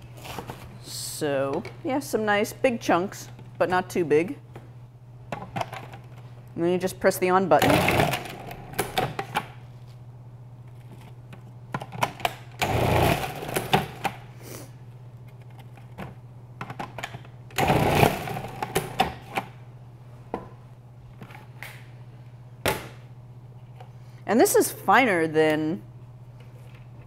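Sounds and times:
food processor motor running: 0:12.6 - 0:14.0, 0:17.6 - 0:19.0.

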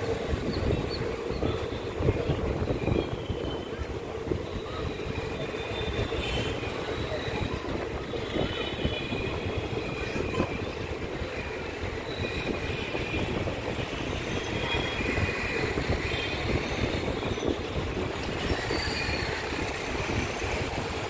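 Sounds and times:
train wheels rumbling on rails: 0:00.0 - 0:21.0
high-pitched wheel squeals: 0:11.9 - 0:20.7.

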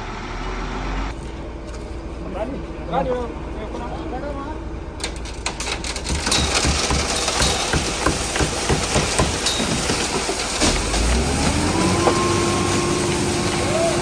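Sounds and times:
truck engine running: 0:00.0 - 0:14.0
clattering knocks: 0:05.0 - 0:12.2
concrete pouring down chute: 0:06.1 - 0:14.0.

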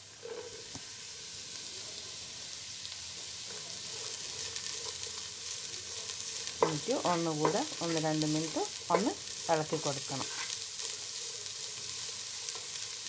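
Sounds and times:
vegetables sizzling in oil: 0:00.0 - 0:13.0
spatula scraping pan: 0:09.8 - 0:12.7.

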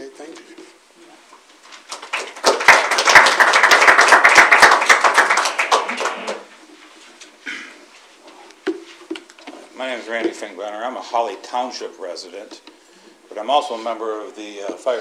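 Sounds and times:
audience applauding: 0:01.8 - 0:06.6.

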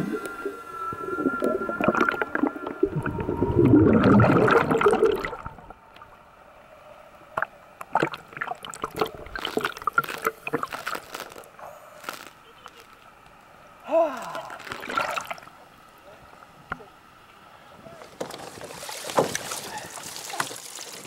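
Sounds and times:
underwater air bubbles gurgling: 0:00.0 - 0:06.1, 0:07.3 - 0:11.3
small splashes: 0:07.4 - 0:13.0, 0:14.2 - 0:15.6, 0:18.4 - 0:21.0.

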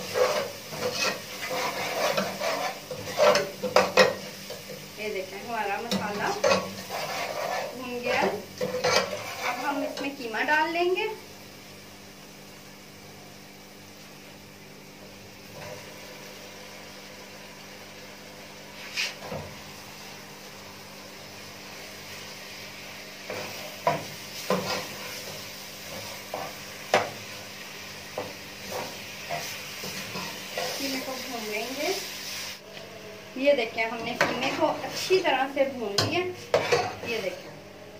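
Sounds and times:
meat sizzling in pot: 0:00.0 - 0:37.4
metal spoon scraping pot: 0:00.1 - 0:04.2, 0:06.0 - 0:09.8.

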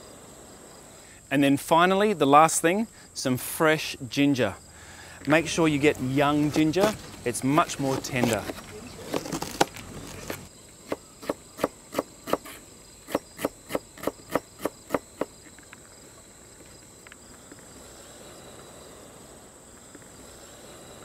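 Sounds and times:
faint high insect drone: 0:00.0 - 0:21.0.

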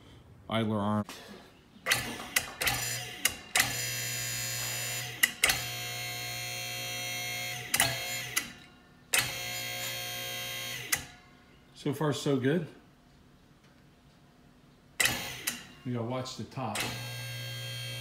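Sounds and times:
hydraulic pump motor humming: 0:01.9 - 0:11.1, 0:15.0 - 0:15.7, 0:16.8 - 0:18.0.

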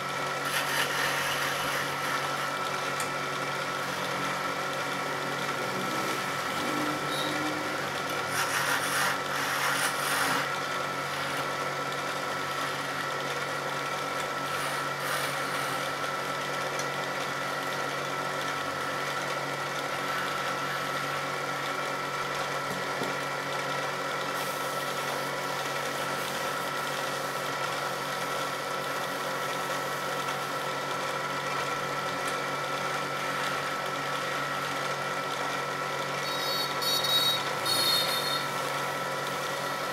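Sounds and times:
wood lathe humming: 0:00.0 - 0:39.9
chisel scraping wood: 0:00.4 - 0:02.5, 0:08.3 - 0:10.5.

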